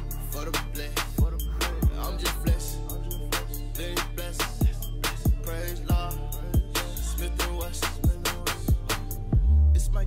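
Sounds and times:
hip-hop backing track: 0:00.0 - 0:10.0
deep kick drums: 0:08.0 - 0:10.0.

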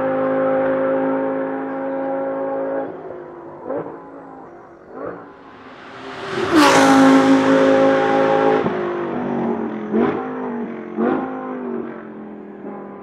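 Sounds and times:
race car engine passing: 0:02.8 - 0:11.9.

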